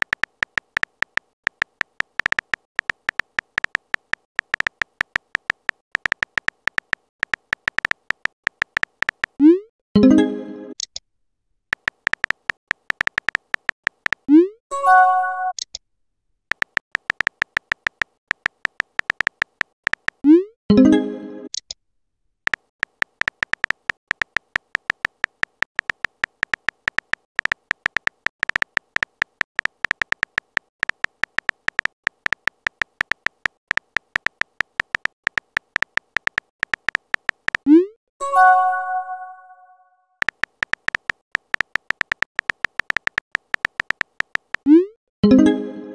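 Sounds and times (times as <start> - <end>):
electronic keyboard typing clicks: 0.0 - 9.5, 11.7 - 14.5, 16.5 - 20.4, 22.5 - 37.8, 40.2 - 45.4
message sent swoop and chime: 38.2 - 39.8.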